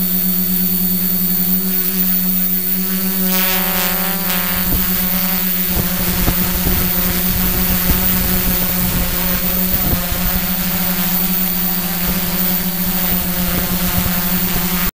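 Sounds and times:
drone motors humming: 0.0 - 15.0
propeller wash and wind rushing: 4.4 - 14.9.

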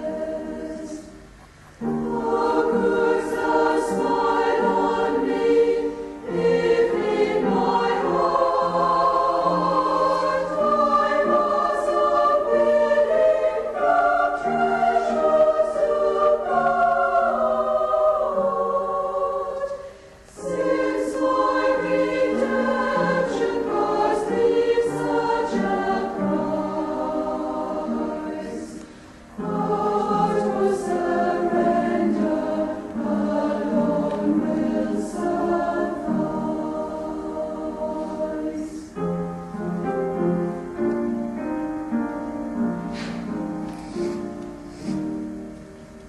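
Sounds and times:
choir singing a hymn: 0.0 - 46.0
singers breathing: 19.8 - 20.4, 28.8 - 29.4.

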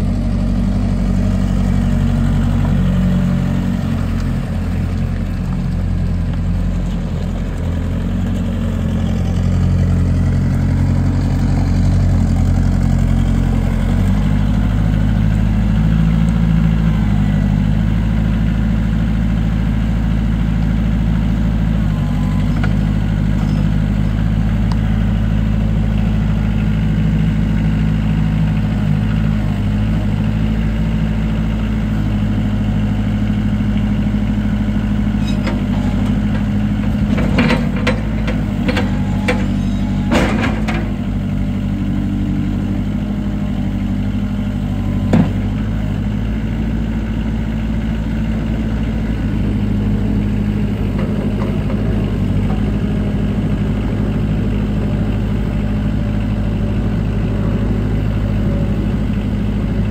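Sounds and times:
diesel engine running: 0.0 - 59.9
clicks and clanks: 35.2 - 40.9.

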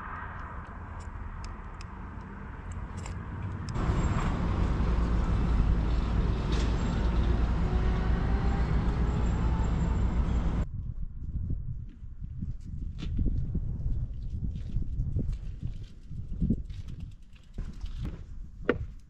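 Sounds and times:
heavy vehicle engine rumble: 0.0 - 10.6.

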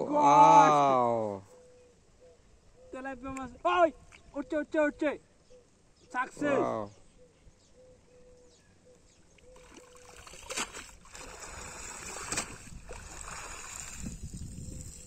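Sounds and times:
water splashing off net: 9.6 - 14.4.

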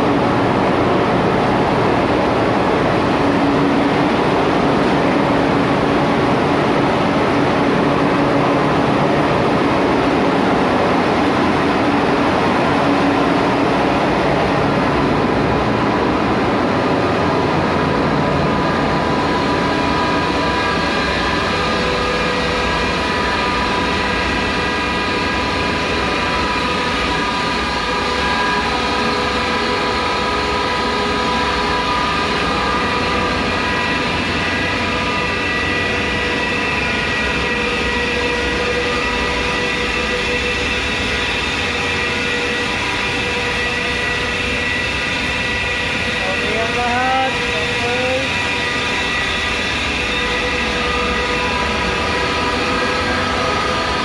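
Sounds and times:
engine room machinery drone: 0.0 - 54.0
machinery whining tones: 0.0 - 54.0.

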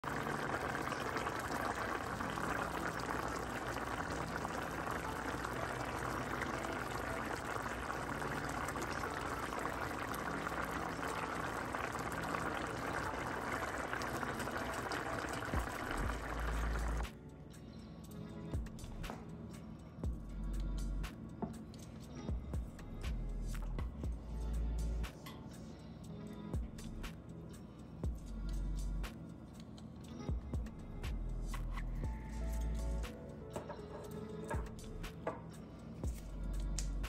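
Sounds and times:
stew bubbling in a pan: 0.0 - 17.0.

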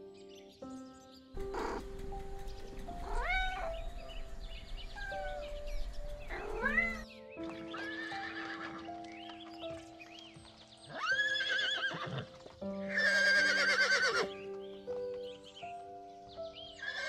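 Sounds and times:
calm music with held notes: 0.0 - 17.0
horse whinnying: 7.7 - 8.8, 10.9 - 14.3, 16.8 - 17.0.

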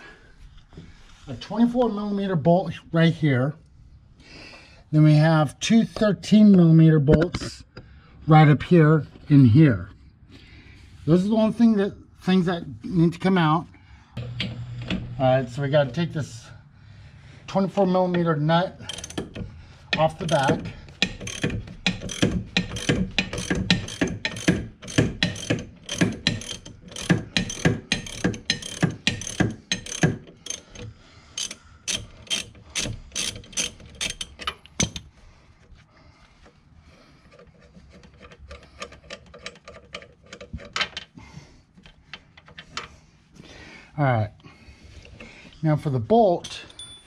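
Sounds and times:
ratchet wrench clicking: 18.8 - 35.1.

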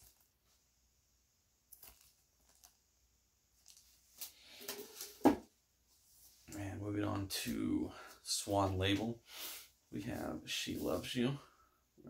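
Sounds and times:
plastic sleeves rustling: 3.5 - 5.4.

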